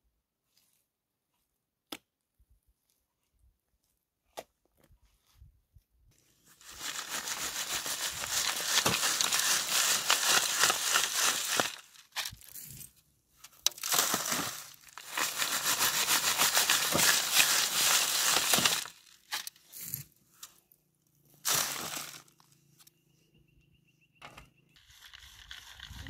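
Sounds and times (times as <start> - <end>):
rustling crinkling: 6.5 - 12.7, 13.5 - 19.6.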